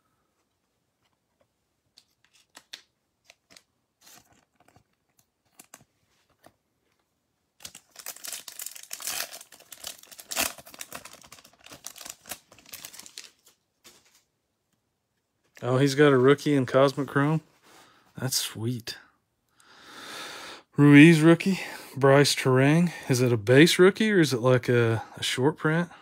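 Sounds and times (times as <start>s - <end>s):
plastic wrapper tearing and crinkling: 2.2s - 5.9s, 7.6s - 14.2s.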